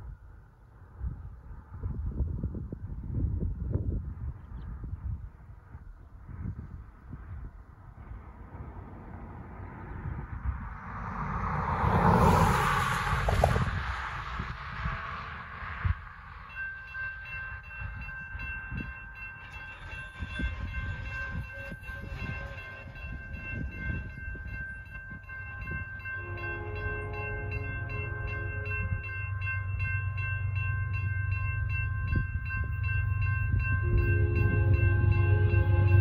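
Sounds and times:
locomotive low rumble: 0:13.1 - 0:36.0
railroad crossing bell ringing: 0:15.8 - 0:36.0
locomotive horn blasts: 0:20.3 - 0:23.2, 0:26.1 - 0:29.1, 0:33.8 - 0:36.0.

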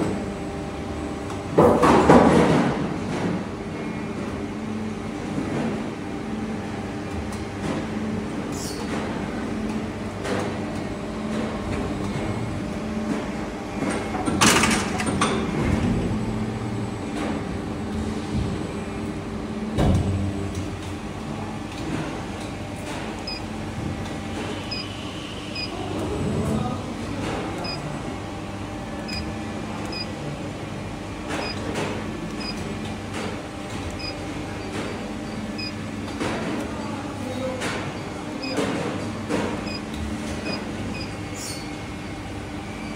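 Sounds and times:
machine drive humming: 0:15.5 - 0:42.9
keypad beeps: 0:23.2 - 0:23.5, 0:24.6 - 0:25.8, 0:27.6 - 0:27.9, 0:29.0 - 0:29.3, 0:29.9 - 0:30.1, 0:31.4 - 0:31.7, 0:32.3 - 0:32.6, 0:34.0 - 0:35.8, 0:38.0 - 0:38.7, 0:39.6 - 0:41.2.

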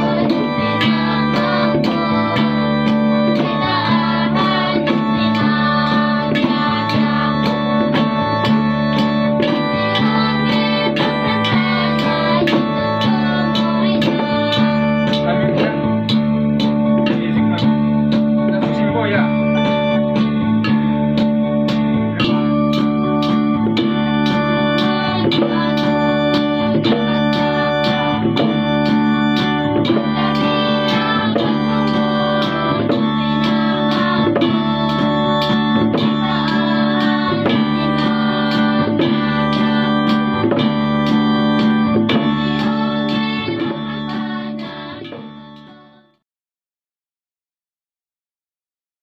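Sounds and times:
women's choir singing gospel: 0:00.0 - 0:14.9, 0:24.3 - 0:46.0
steady beat: 0:00.0 - 0:45.8
acoustic guitar: 0:00.0 - 0:46.2
organ-like keyboard: 0:00.0 - 0:46.2.

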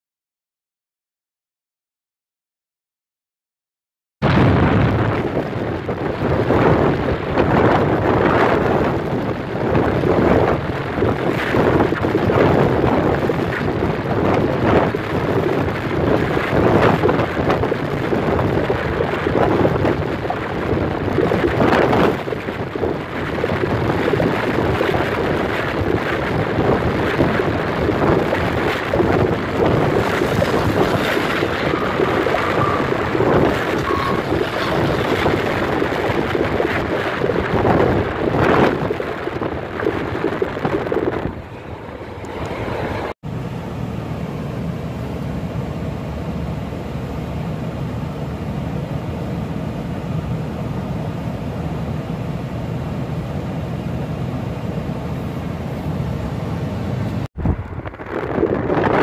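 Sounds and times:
wind buffeting microphone: 0:04.2 - 0:43.2, 0:56.1 - 0:59.0
car road noise: 0:04.2 - 0:59.0.

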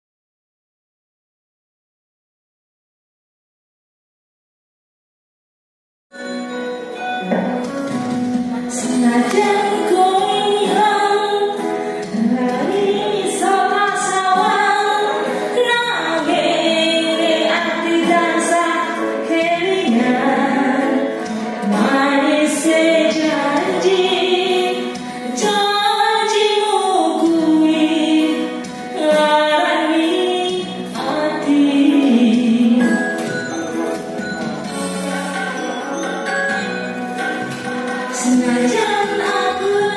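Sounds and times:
karaoke backing track: 0:06.2 - 0:39.9
woman singing into microphone: 0:08.4 - 0:33.3, 0:37.6 - 0:39.9.

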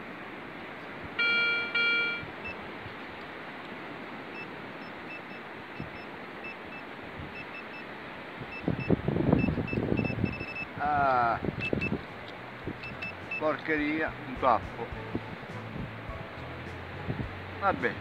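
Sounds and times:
metal detector pinpointer beeping: 0:01.2 - 0:02.6, 0:08.5 - 0:10.8, 0:11.6 - 0:12.0, 0:12.8 - 0:13.6.

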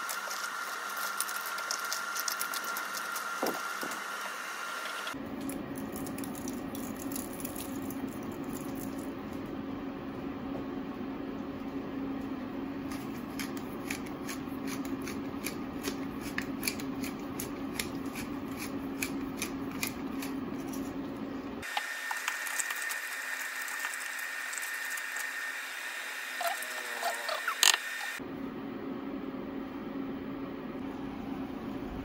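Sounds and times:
seasoning being shaken: 0:00.0 - 0:03.4, 0:22.0 - 0:25.4
cooktop low hum: 0:00.0 - 0:32.0.

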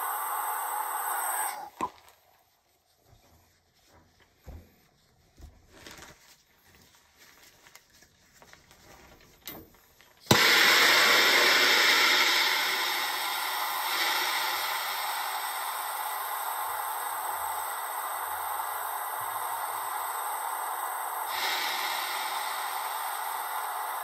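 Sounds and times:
gas torch flame hissing: 0:00.0 - 0:02.0, 0:10.2 - 0:24.0
gas torch lighting with a pop: 0:00.0 - 0:02.2, 0:10.2 - 0:24.0.

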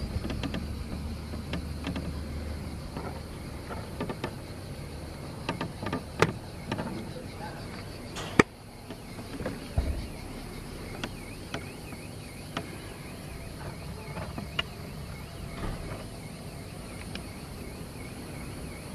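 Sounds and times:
light clicks and knocks: 0:00.0 - 0:17.4
faint insect call: 0:00.0 - 0:18.9.

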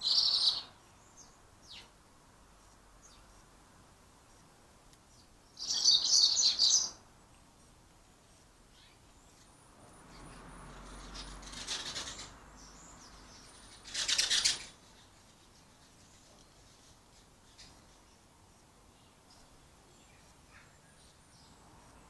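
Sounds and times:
thin high bird calls: 0:00.0 - 0:02.0, 0:05.1 - 0:07.0, 0:08.7 - 0:21.6.

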